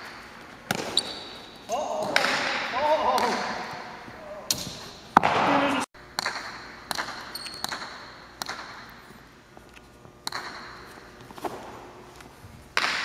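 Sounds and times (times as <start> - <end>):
ball striking court walls: 0.0 - 3.9, 4.5 - 9.1, 10.2 - 11.8, 12.8 - 13.0.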